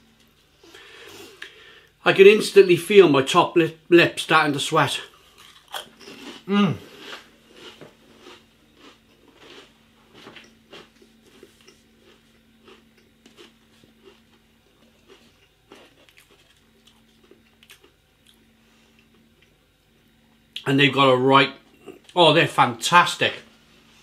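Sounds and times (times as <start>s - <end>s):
crisps chewing crunches: 5.1s - 18.5s.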